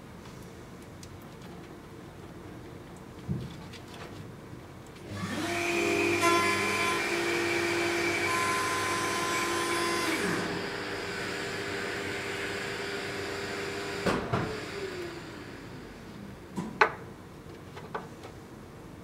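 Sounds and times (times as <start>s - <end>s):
motor hum with whining tones: 5.0s - 16.5s
wooden blocks knocking on workbench: 16.8s - 17.0s.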